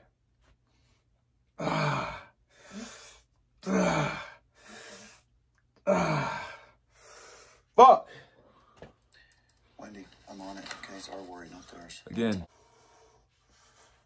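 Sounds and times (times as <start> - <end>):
man groaning with effort: 1.6 - 2.3, 3.6 - 4.4, 5.9 - 6.6.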